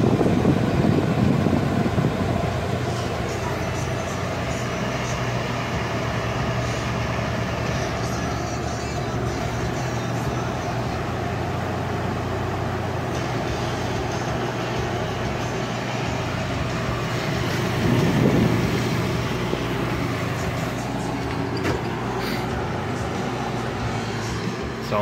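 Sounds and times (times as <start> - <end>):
air conditioner fan blowing: 0.0 - 25.0.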